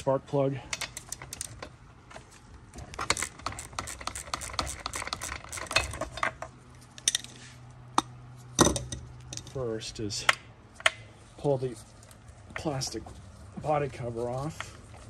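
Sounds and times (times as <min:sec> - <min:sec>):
ratchet wrench clicking: 0:03.0 - 0:06.0.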